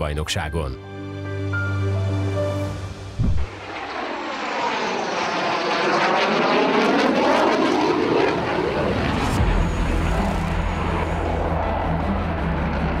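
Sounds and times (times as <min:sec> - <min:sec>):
background music: 0:00.0 - 0:03.4, 0:09.1 - 0:13.0
fighter jet flying past: 0:03.0 - 0:13.0.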